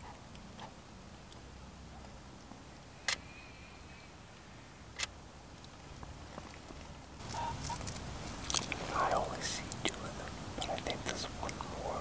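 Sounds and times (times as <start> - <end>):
soft rustling: 5.6 - 11.0.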